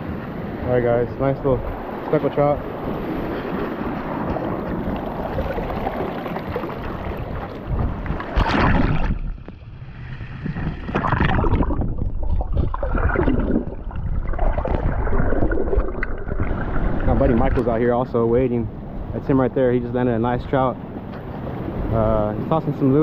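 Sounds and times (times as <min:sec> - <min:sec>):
underwater gurgling and sloshing: 0:00.0 - 0:23.0
sea water splashing at the edge: 0:01.7 - 0:18.1
loud splash: 0:08.2 - 0:09.4, 0:10.0 - 0:17.7.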